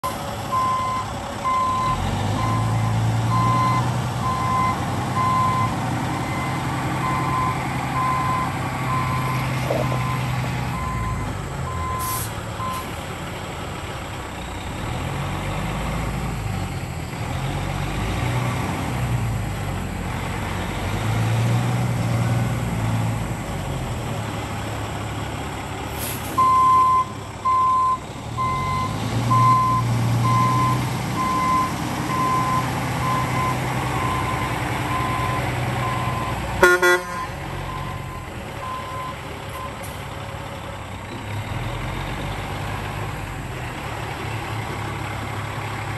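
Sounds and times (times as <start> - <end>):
truck diesel engine running: 0.0 - 45.9
reversing alarm beeping: 0.5 - 12.9, 26.4 - 39.8
truck horn toot: 36.6 - 37.4.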